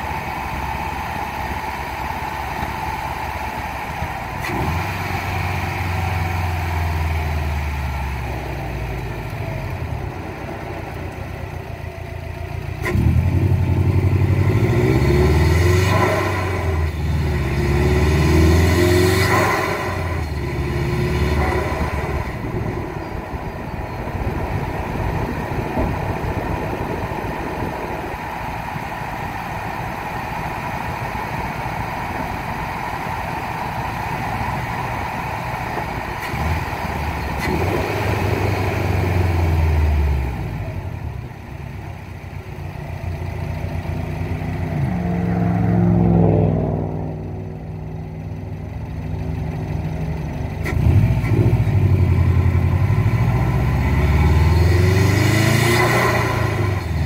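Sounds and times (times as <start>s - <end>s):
turbocharged car engine revving: 0.0s - 42.0s, 43.0s - 57.0s.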